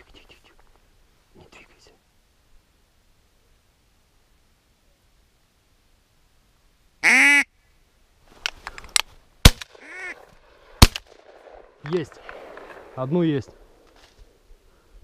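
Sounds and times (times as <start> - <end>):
duck quacking: 7.0 - 7.5, 9.8 - 10.2
shotgun shots: 9.4 - 13.0.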